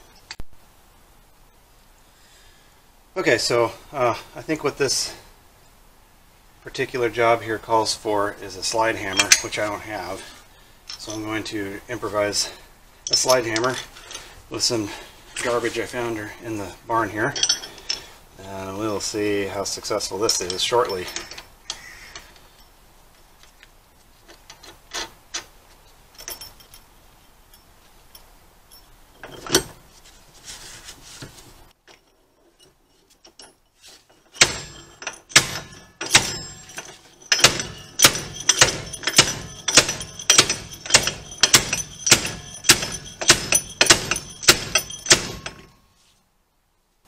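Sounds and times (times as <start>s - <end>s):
metal parts clinking: 9.0s - 9.7s, 17.2s - 18.1s, 20.2s - 21.8s, 26.1s - 29.8s, 31.9s - 45.8s
slide hammer metal clanks: 9.1s - 10.3s, 34.3s - 45.8s.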